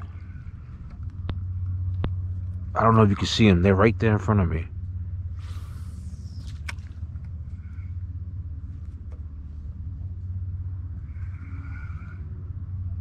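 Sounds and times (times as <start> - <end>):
wind buffeting microphone: 0.0 - 13.0.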